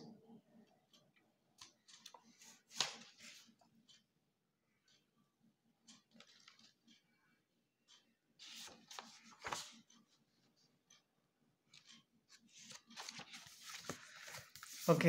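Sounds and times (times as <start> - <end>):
book pages rustling: 1.8 - 3.6, 6.2 - 6.8, 8.4 - 10.0, 11.7 - 15.0.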